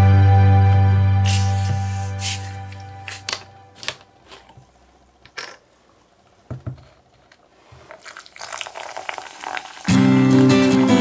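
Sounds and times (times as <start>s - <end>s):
soda pouring and fizzing: 7.8s - 10.6s.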